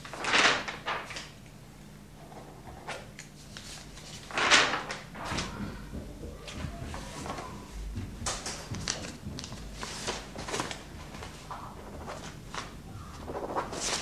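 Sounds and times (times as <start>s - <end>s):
things being handled rustling: 5.2s - 11.6s.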